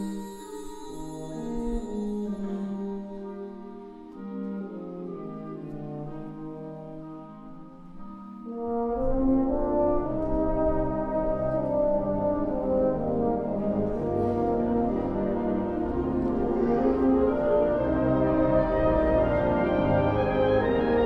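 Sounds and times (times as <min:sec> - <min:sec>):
wind band playing: 0:00.0 - 0:21.0
low brass and bass: 0:08.4 - 0:21.0.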